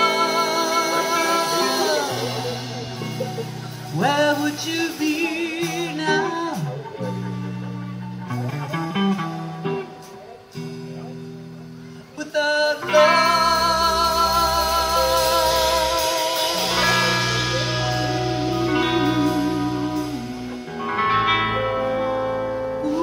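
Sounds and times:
live band playing: 0.0 - 23.0
picked guitar notes: 0.0 - 23.0
wavering lead line: 0.0 - 23.0.

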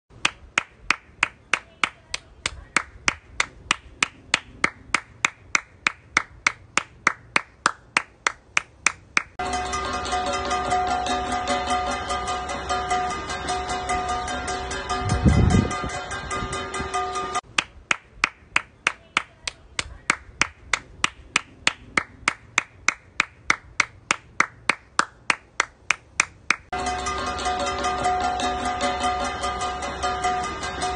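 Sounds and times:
person clapping hands: 0.2 - 9.4, 17.5 - 26.7.

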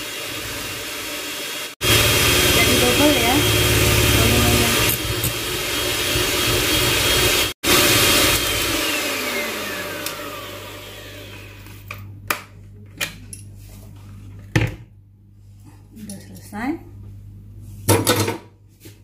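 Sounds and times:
electric mixer motor running: 0.0 - 11.8.

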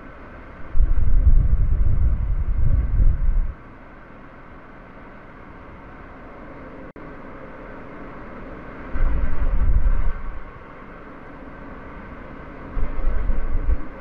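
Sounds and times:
road and tyre noise: 0.0 - 14.0
heavy low rumbles: 0.7 - 3.6.

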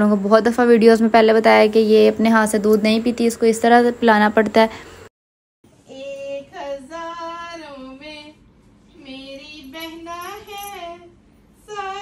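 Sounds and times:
child singing: 11.7 - 12.0.

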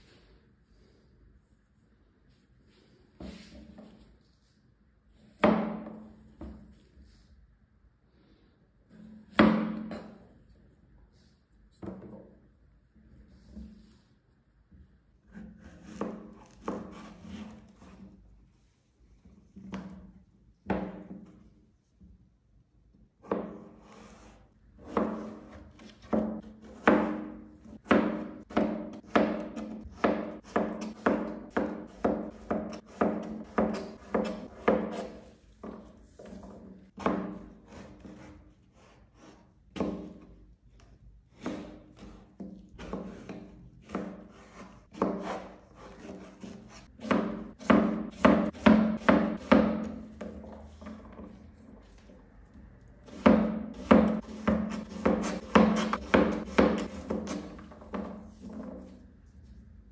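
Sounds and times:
knife chopping zucchini: 15.3 - 18.1, 23.2 - 40.3, 41.3 - 52.1, 53.0 - 59.0.

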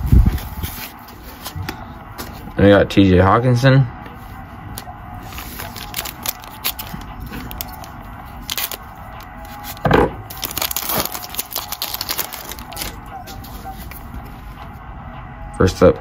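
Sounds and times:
wrapper crinkling and tearing: 5.2 - 14.0.

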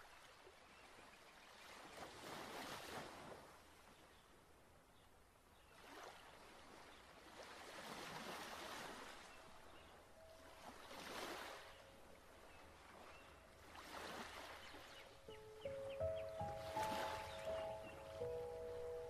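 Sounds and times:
faint water rushing: 8.0 - 19.0.

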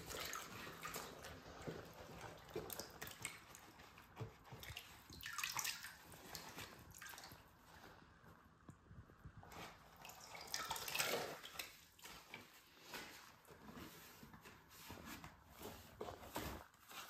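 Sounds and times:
water splashing in basin: 0.0 - 3.6, 4.6 - 7.5, 9.9 - 12.1.

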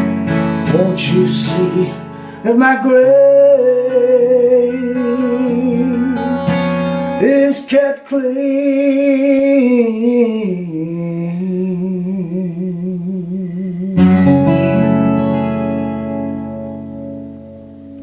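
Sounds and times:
man singing with vibrato: 0.0 - 14.8
acoustic guitar chord strummed: 0.0 - 18.0.

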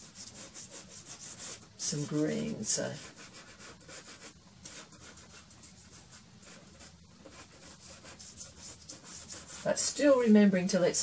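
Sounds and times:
pastel scratching on paper: 0.0 - 9.9.

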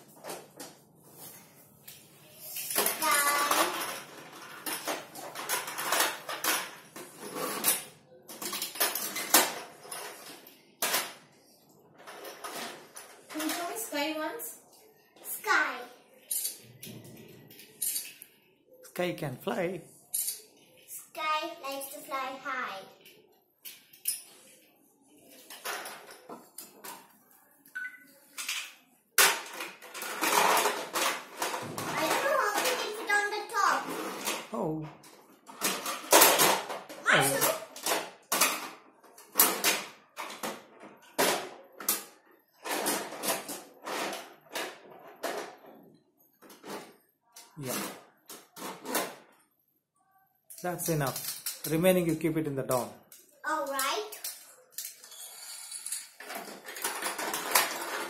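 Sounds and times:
scraping and rustling: 0.0 - 10.4
plastic toys clattering and clicking: 0.0 - 18.6, 20.1 - 49.5, 50.5 - 58.0.

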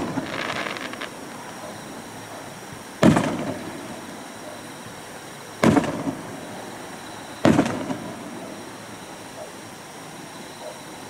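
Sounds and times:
firework bangs with crackle: 0.0 - 4.3, 5.6 - 8.7.

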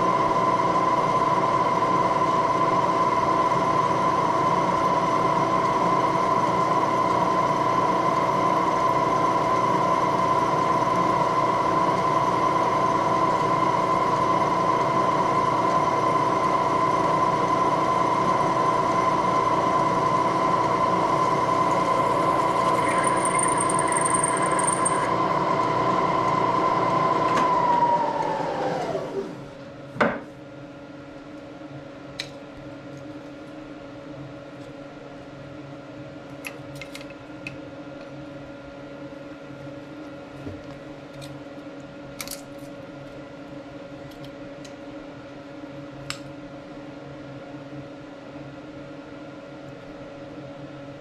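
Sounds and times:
machine spindle running: 21.2 - 25.2.

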